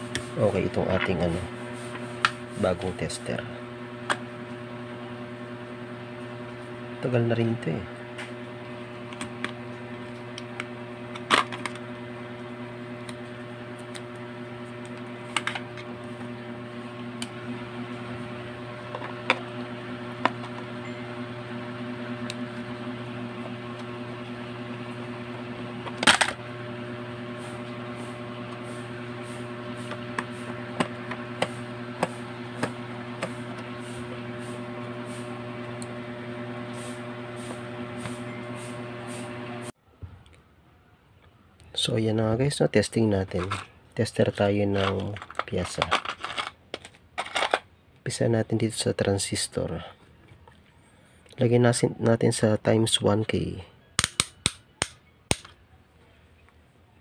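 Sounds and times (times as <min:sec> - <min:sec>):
steady low hum: 0:00.0 - 0:40.3.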